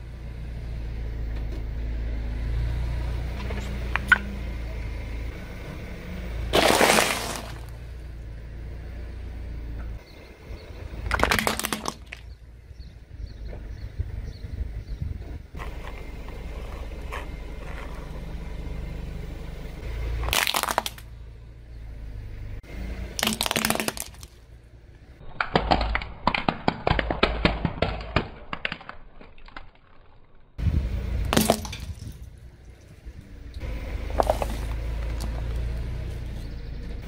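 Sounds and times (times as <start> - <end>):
car low rumble: 0.0 - 26.2, 30.1 - 37.0
plastic cracking under tyre: 6.5 - 7.8, 11.0 - 12.4, 20.2 - 21.1, 23.2 - 24.4, 25.3 - 30.5, 31.3 - 32.2.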